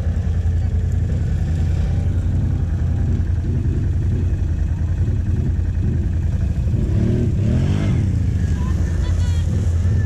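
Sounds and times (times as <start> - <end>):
atv engine idling: 0.0 - 10.0
four-wheelers driving: 0.0 - 10.0.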